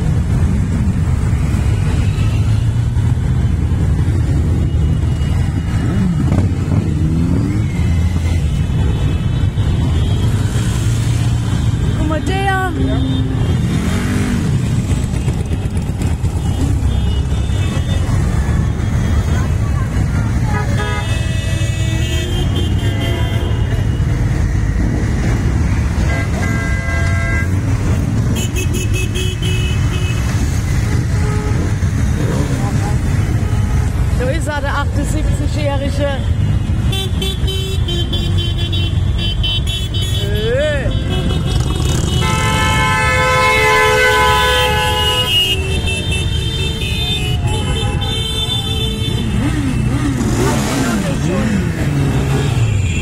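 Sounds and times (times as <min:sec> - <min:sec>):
motorcycle engines rumbling: 0:00.0 - 0:53.0
vehicle horn: 0:20.4 - 0:24.1, 0:26.0 - 0:27.6, 0:40.9 - 0:49.7
motorcycles rumbling past: 0:41.2 - 0:42.7.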